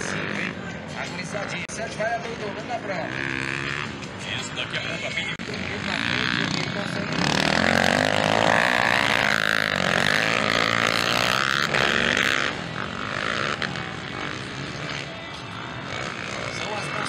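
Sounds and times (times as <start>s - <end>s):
dirt bike engine revving: 0.0s - 1.6s, 2.4s - 17.0s.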